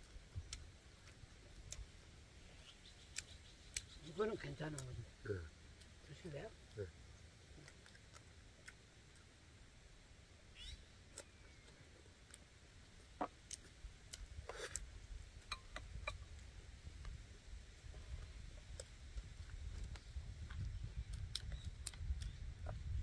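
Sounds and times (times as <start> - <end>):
chewing: 7.5 - 9.3.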